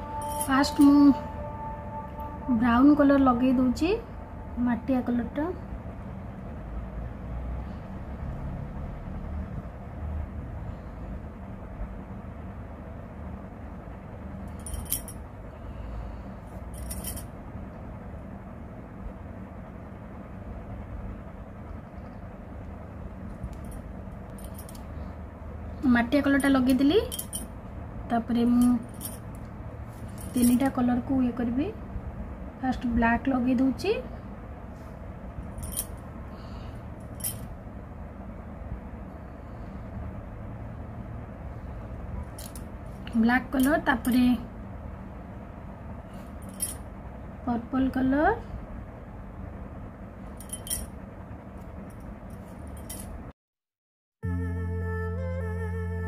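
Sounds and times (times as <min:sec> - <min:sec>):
low background hum: 0:00.0 - 0:53.4, 0:54.2 - 0:56.0
light clinks: 0:50.4 - 0:50.9.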